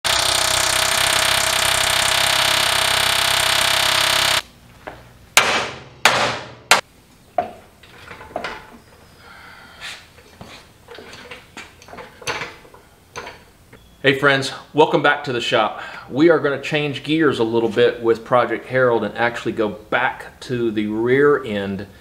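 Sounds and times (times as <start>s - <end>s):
pneumatic air hammer rattling: 0.1s - 4.4s.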